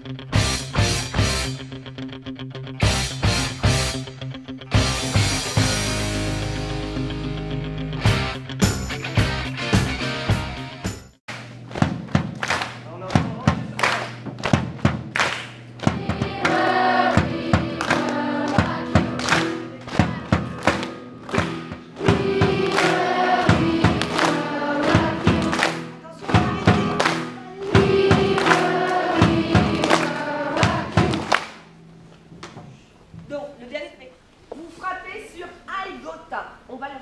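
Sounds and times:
sharp percussive beat: 0:10.9 - 0:31.8
children's choir singing: 0:15.8 - 0:31.5
keyboard accompaniment: 0:16.1 - 0:31.3.

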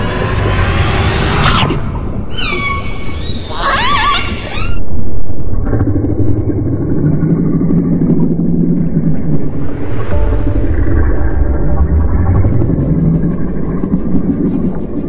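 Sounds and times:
killer whale calls: 0:00.0 - 0:04.8
deep underwater rumble: 0:00.0 - 0:15.0
low steady hum: 0:04.8 - 0:15.0.

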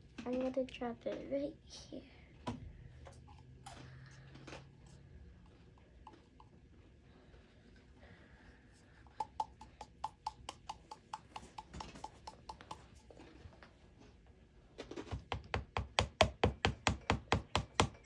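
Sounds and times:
plastic bottle being tapped: 0:09.1 - 0:13.0.

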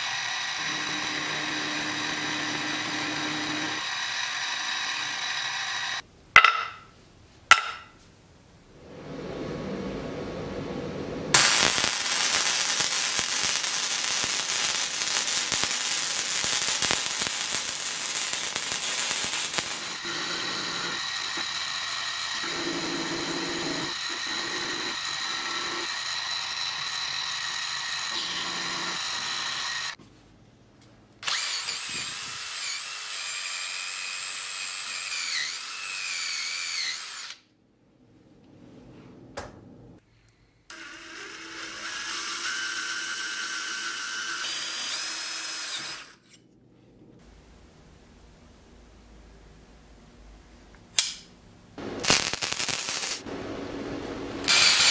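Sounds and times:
milling machine whine: 0:00.0 - 0:06.0, 0:19.6 - 0:30.0
welding arc crackling: 0:11.3 - 0:25.1, 0:51.8 - 0:54.9.

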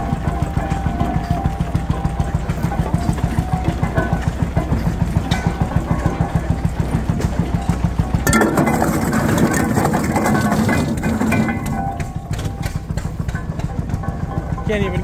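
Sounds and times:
rock crusher knocking: 0:00.0 - 0:15.0
rocks crunching and rattling: 0:00.0 - 0:15.0.

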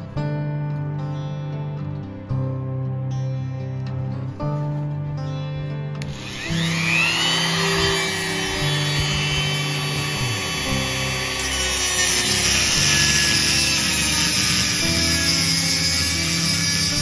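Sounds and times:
background music with bass line: 0:00.0 - 0:17.0
power tool whirring: 0:06.0 - 0:17.0.

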